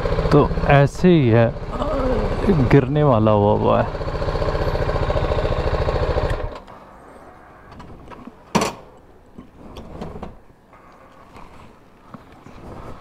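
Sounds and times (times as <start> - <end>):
motorcycle engine idling: 0.0 - 6.7.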